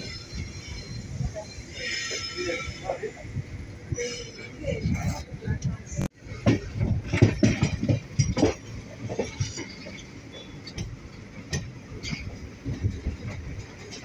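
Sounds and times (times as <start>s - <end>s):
train rumble: 0.0s - 14.0s
train wheels clattering over rail joints: 6.3s - 14.0s.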